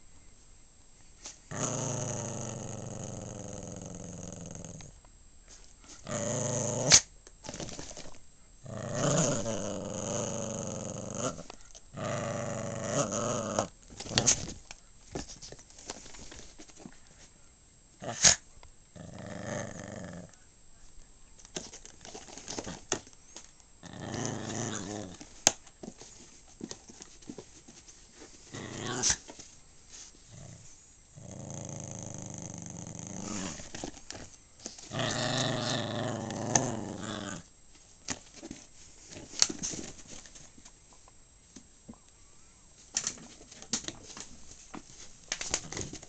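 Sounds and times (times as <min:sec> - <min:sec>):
small dog growling: 0:01.5 - 0:05.0, 0:06.0 - 0:07.1, 0:08.6 - 0:14.4, 0:18.0 - 0:20.4, 0:23.8 - 0:25.3, 0:28.5 - 0:29.2, 0:30.3 - 0:33.9, 0:34.8 - 0:37.5.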